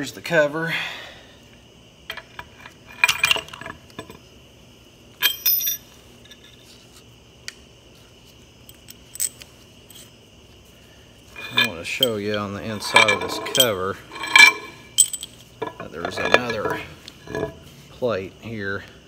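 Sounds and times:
metal parts knocking and clinking: 2.1s - 4.2s, 5.2s - 6.4s, 11.4s - 17.7s.

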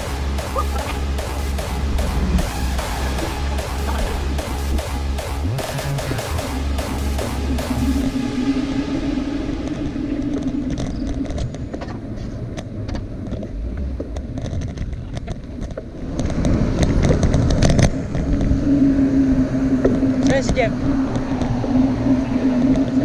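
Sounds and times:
road traffic rumble: 0.0s - 23.0s.

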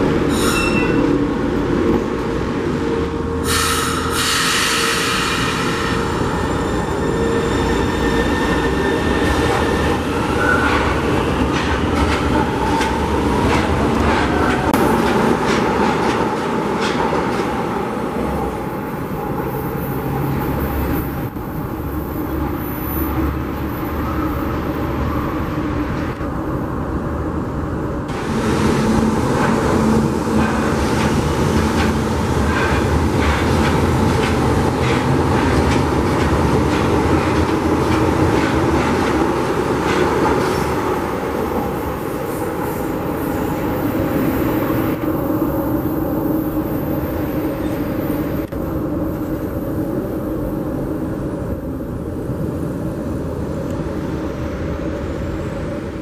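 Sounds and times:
train wheels rumbling: 28.0s - 52.4s.

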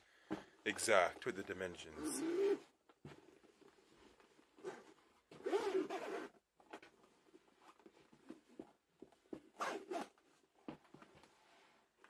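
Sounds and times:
zipper being pulled closed: 2.0s - 2.7s, 4.6s - 6.4s, 9.5s - 10.2s.

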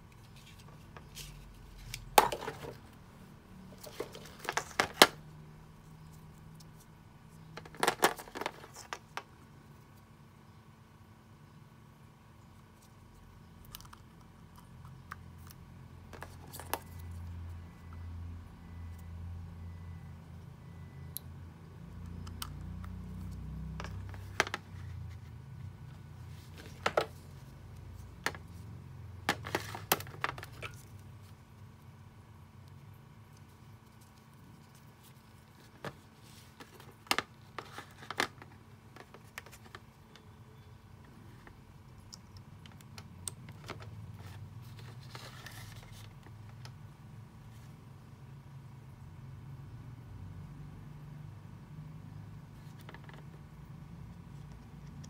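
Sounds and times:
faint low hum: 0.0s - 55.0s
plastic connectors handled: 0.1s - 3.0s, 3.7s - 5.2s, 7.6s - 9.3s, 23.8s - 25.3s, 25.9s - 31.4s, 32.7s - 40.3s, 41.0s - 46.8s.

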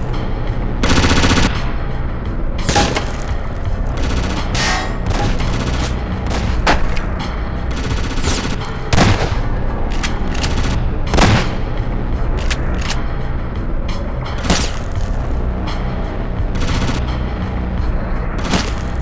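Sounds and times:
background music: 0.0s - 19.0s
gunshots and bursts: 0.8s - 1.8s, 2.6s - 13.1s, 14.3s - 15.4s, 16.4s - 17.2s, 18.4s - 19.0s.

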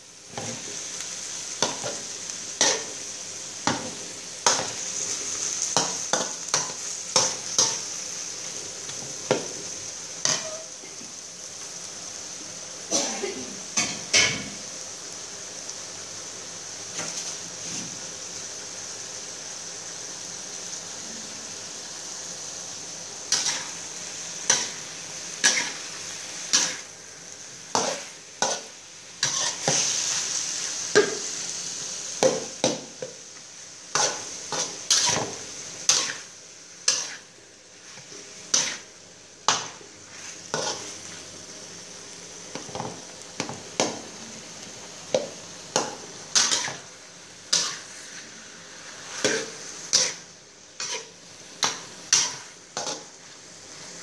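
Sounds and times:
food sizzling in a wok: 0.0s - 54.0s
metal spatula scraping a pan: 10.2s - 10.7s, 23.3s - 23.8s, 25.4s - 25.8s, 27.8s - 29.9s, 34.0s - 38.9s, 40.1s - 41.0s, 45.8s - 46.9s, 47.5s - 53.1s.

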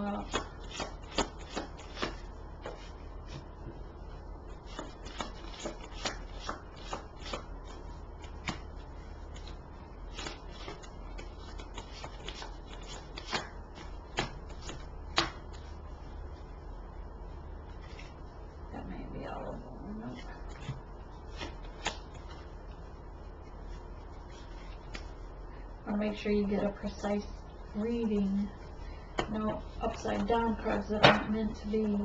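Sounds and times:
cards being shuffled: 0.2s - 2.9s, 4.7s - 8.6s, 9.3s - 15.7s, 17.8s - 18.2s, 20.5s - 22.8s, 24.2s - 25.2s.

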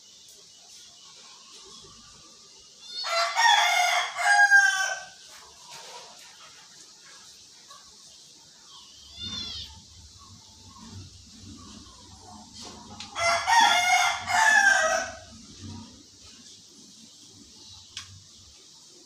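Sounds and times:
rooster crowing: 2.8s - 5.2s, 13.0s - 15.5s.

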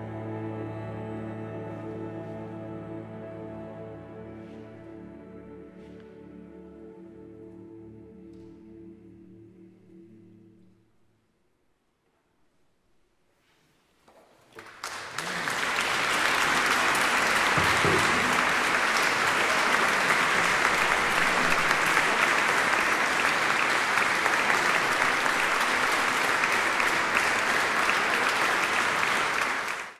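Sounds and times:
audience applause: 14.6s - 29.9s.

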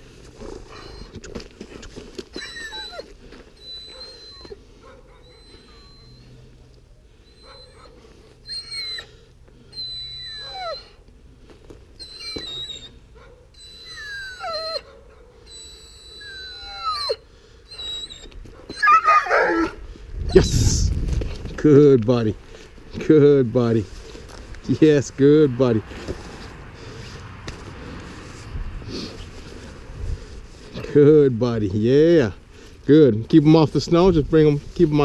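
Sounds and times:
puppy whining: 0.4s - 6.6s, 7.2s - 11.0s, 12.0s - 20.5s.

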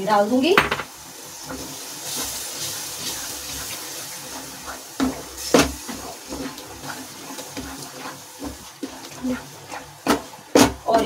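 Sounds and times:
spoon knocking on pan: 0.6s - 1.0s, 10.0s - 11.0s
liquid swishing in pan: 1.0s - 11.0s
spoon stirring curry in pan: 1.0s - 11.0s.

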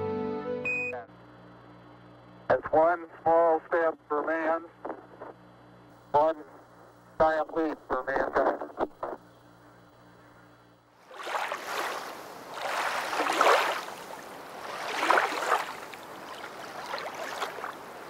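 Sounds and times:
faint steady hum: 0.7s - 18.0s
ocean waves washing: 11.0s - 18.0s.

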